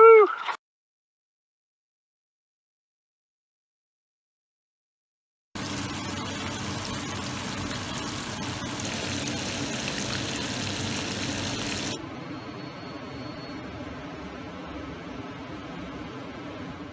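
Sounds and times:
fish frying in hot oil: 5.6 - 12.0.

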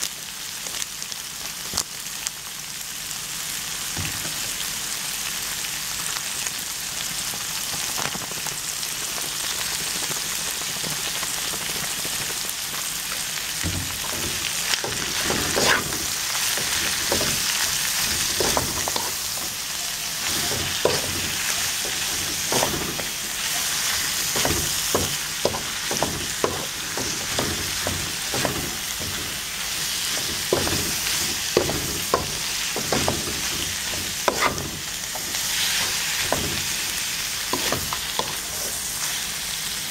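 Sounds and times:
vegetables sizzling in a pan: 0.0 - 39.9
wooden spatula scraping a pan: 13.2 - 38.9.

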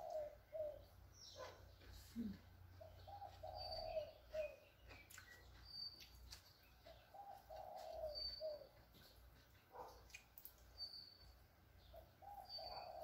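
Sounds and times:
doves cooing: 0.0 - 1.5, 2.3 - 4.6, 6.9 - 8.8, 12.2 - 13.0
sparrows chirping: 0.0 - 13.0.

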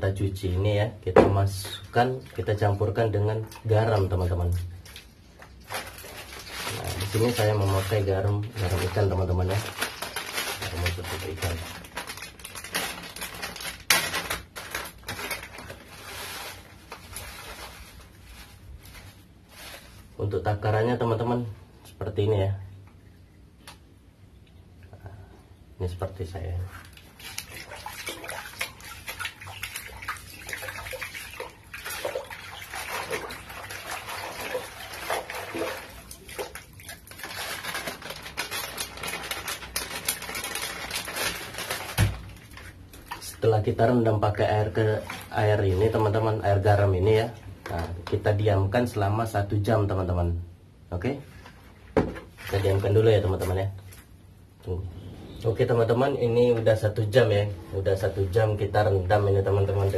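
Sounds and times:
water splashing in bucket: 3.4 - 18.0, 26.8 - 43.5, 52.3 - 53.6
hand swishing leaves in water: 4.5 - 13.3, 15.0 - 20.2, 26.7 - 43.4
plastic bag crinkling: 4.8 - 20.2, 26.7 - 43.4
plastic bag tearing: 5.6 - 20.1, 32.8 - 42.8.

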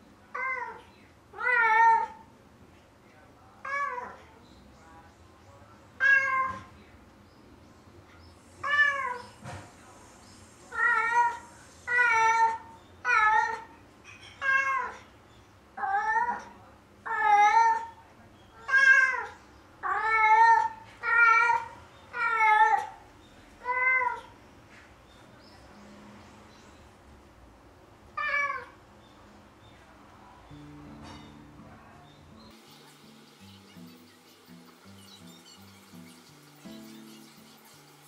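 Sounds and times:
cat meowing: 0.3 - 2.3, 3.6 - 4.3, 6.0 - 6.7, 8.6 - 9.4, 10.7 - 13.7, 14.3 - 15.1, 15.8 - 18.0, 18.6 - 23.0, 23.6 - 24.4, 28.1 - 28.8.

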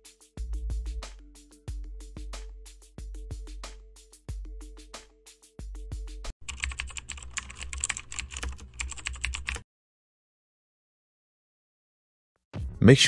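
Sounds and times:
electronic music with drum beat: 0.0 - 6.3
rapid keyboard typing: 6.4 - 9.6.

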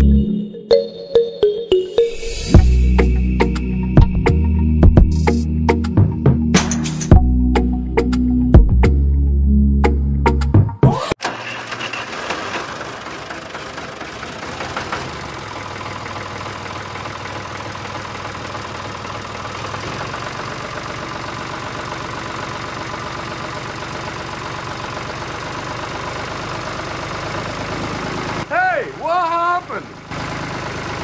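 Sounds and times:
model tractor engine chugging: 11.2 - 31.0.

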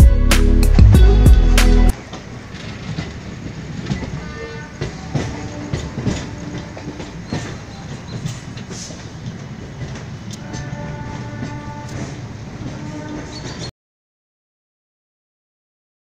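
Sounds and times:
train wheels clacking on rails: 1.9 - 13.7.

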